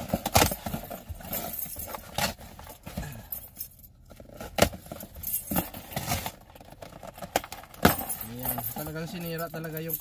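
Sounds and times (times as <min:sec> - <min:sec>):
cardboard scraping and ripping: 0:05.6 - 0:07.6
keys jangling: 0:07.8 - 0:10.0.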